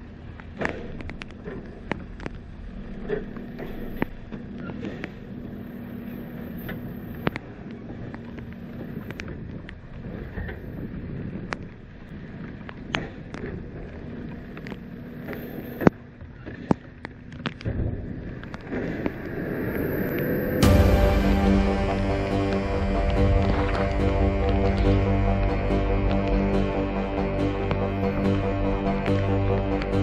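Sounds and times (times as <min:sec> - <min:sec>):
sharp ticks of rain: 0:00.0 - 0:09.8, 0:18.4 - 0:26.4
steady low hum: 0:00.0 - 0:16.2, 0:17.0 - 0:30.0.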